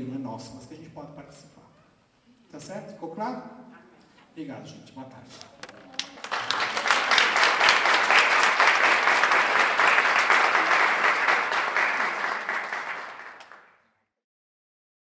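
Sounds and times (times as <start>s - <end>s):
audience applauding: 5.4s - 13.8s.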